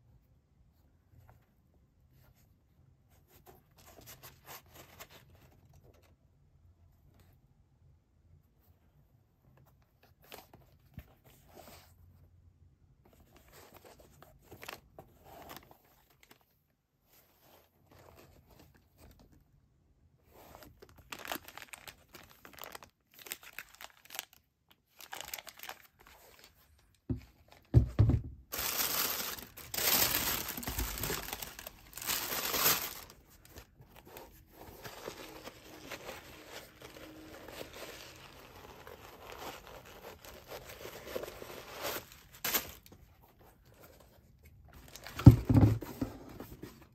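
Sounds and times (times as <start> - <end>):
plastic and paper crinkling: 20.4 - 27.8, 28.5 - 46.9
thump: 27.1 - 28.4, 45.2 - 46.1.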